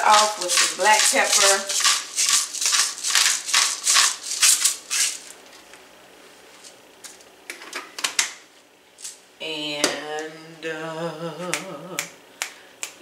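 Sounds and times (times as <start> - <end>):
pepper mill grinding: 0.0 - 5.6.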